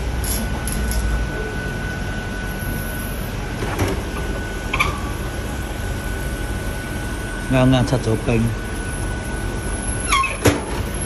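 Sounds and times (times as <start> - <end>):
ice machine humming: 0.0 - 11.0.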